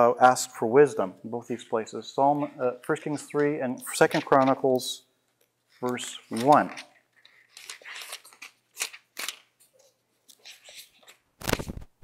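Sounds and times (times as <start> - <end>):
book pages turning and rustling: 3.0 - 4.8, 5.7 - 12.0.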